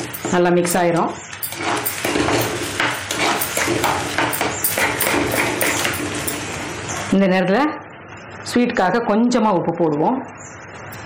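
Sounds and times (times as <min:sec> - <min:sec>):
spoon scraping clay pot: 0:00.0 - 0:06.6.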